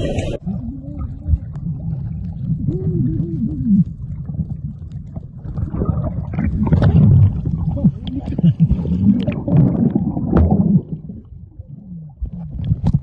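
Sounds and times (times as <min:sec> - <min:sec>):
muffled wavering tones: 0:00.0 - 0:04.6
water sloshing: 0:00.0 - 0:11.5
underwater water rumble: 0:00.0 - 0:13.0.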